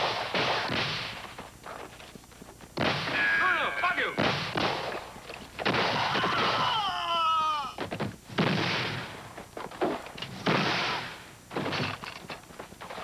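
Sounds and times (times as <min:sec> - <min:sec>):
echoing gunshots: 0:00.0 - 0:01.3, 0:02.8 - 0:06.6, 0:08.3 - 0:11.3
cry falling in pitch: 0:06.0 - 0:07.8.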